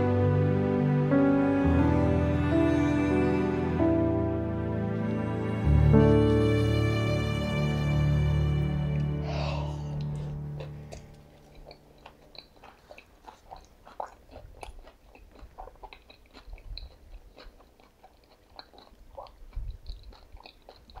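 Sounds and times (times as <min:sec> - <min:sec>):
person chewing crunchy food: 0:09.0 - 0:21.0.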